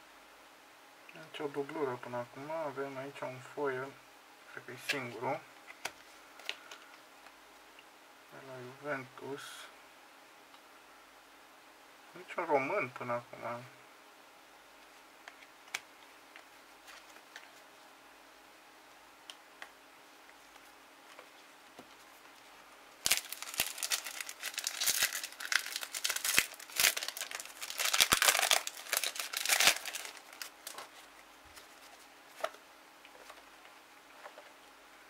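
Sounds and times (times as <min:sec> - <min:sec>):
foil pack tearing and crinkling: 0:23.0 - 0:32.5.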